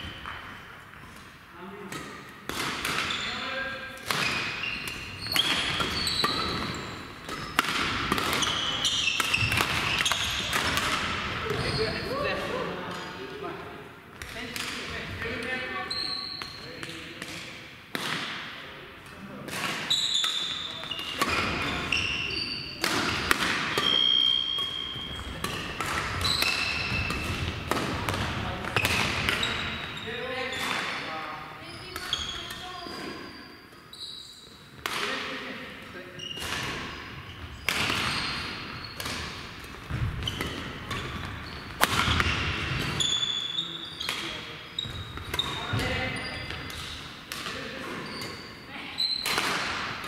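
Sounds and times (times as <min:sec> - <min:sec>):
shoes squeaking on floor: 0:00.0 - 0:01.2, 0:03.0 - 0:13.3, 0:14.8 - 0:16.8, 0:19.8 - 0:22.8, 0:23.5 - 0:27.6, 0:28.4 - 0:31.0, 0:31.6 - 0:34.7, 0:36.2 - 0:46.9, 0:47.6 - 0:49.5
rackets hitting shuttlecock: 0:00.0 - 0:11.8, 0:14.1 - 0:15.6, 0:16.4 - 0:18.6, 0:19.4 - 0:31.2, 0:31.9 - 0:33.3, 0:34.7 - 0:35.4, 0:36.3 - 0:43.4, 0:44.0 - 0:48.5, 0:49.1 - 0:50.0.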